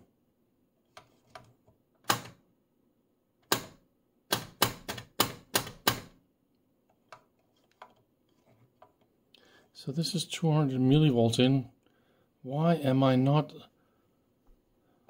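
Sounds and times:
meter switches clicking: 3.4s - 6.1s.

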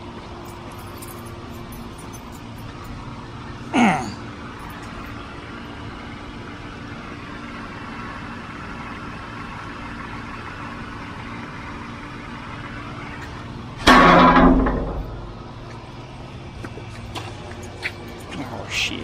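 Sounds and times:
machine hum: 0.0s - 19.0s
loud ringing thump: 13.8s - 15.6s.

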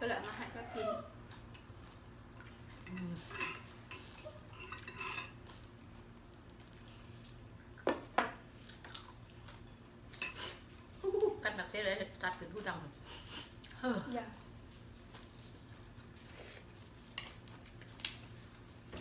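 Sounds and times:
utensils clinking on ceramic bowls: 2.8s - 5.5s.

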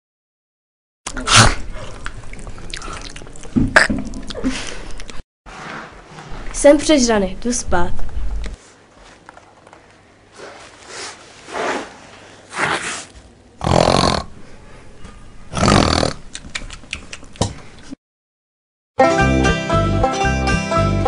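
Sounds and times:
girl snoring: 13.6s - 14.3s, 15.5s - 16.2s.

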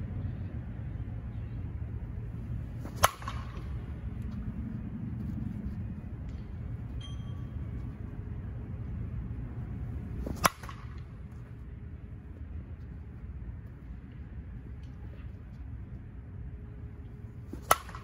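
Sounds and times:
low background rumble: 0.0s - 18.0s
bat striking ball: 2.7s - 4.3s, 10.0s - 11.2s, 17.5s - 18.0s.

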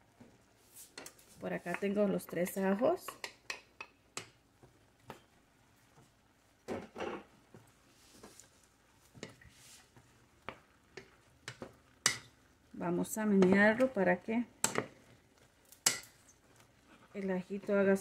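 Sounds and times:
wooden spoon stirring in a pot: 0.0s - 18.0s.

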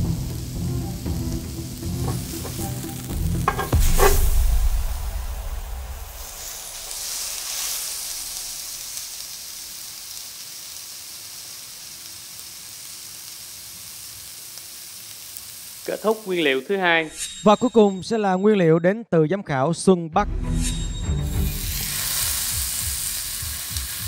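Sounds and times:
meat sizzling on griddle: 0.0s - 16.9s, 21.3s - 24.0s
low boom sound effect: 3.8s - 6.4s.

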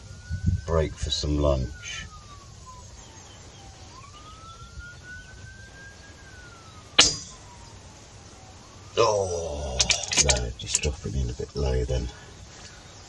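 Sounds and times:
faint siren wailing: 0.0s - 13.0s
air rifle shot: 7.0s - 7.4s.

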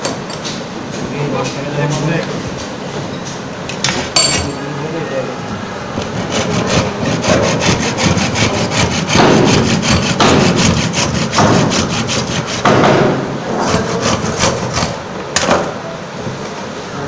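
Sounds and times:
hand saw cutting wood: 6.0s - 15.0s.

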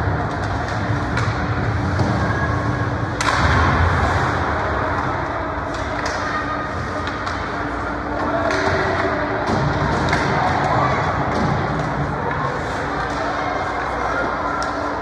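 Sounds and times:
hockey sticks and puck clicking: 0.0s - 2.2s, 3.0s - 15.0s
puck hitting the boards: 8.2s - 12.5s.

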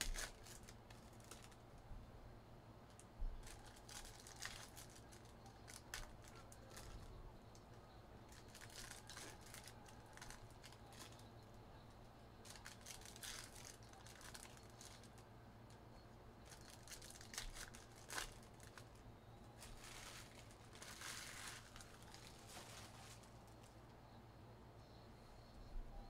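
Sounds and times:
trading cards rustling and flipping: 0.0s - 1.7s, 3.0s - 7.1s, 8.3s - 11.3s, 12.4s - 15.3s, 16.4s - 19.0s, 19.6s - 23.8s.

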